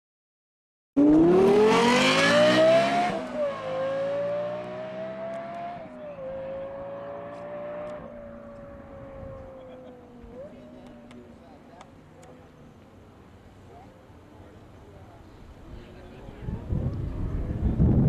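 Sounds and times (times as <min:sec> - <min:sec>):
sports car engine accelerating: 0:01.0 - 0:13.0.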